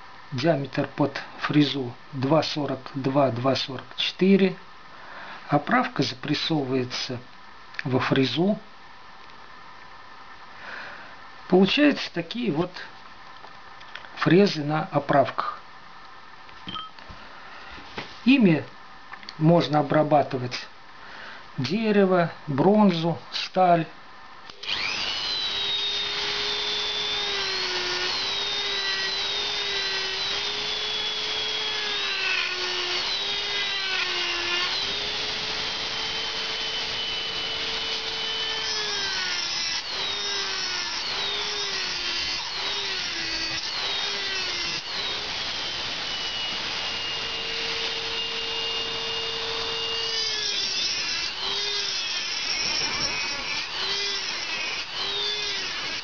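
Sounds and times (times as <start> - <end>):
rotary tool whining: 24.5 - 56.0.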